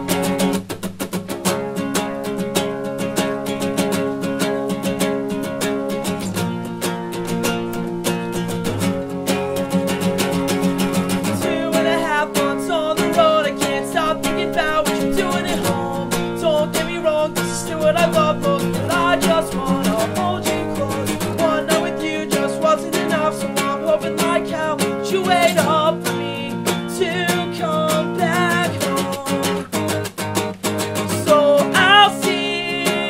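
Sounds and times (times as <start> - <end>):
acoustic guitar strummed: 0.0 - 33.0
voices singing a pop-punk song: 11.1 - 29.7, 31.1 - 33.0.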